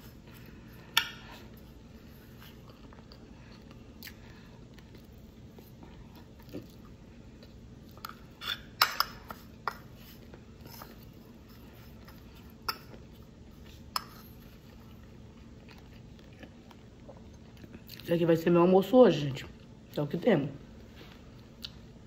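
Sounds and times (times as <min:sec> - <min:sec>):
chewing food: 0:00.2 - 0:08.8, 0:09.5 - 0:18.1.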